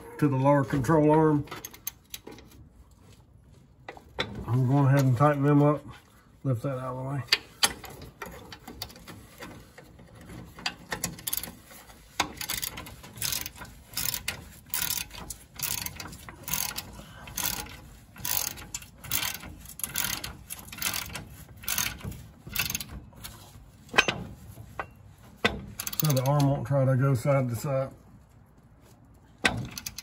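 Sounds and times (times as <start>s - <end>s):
ratchet wrench clicking: 12.3s - 22.9s, 25.8s - 26.4s, 29.4s - 30.0s.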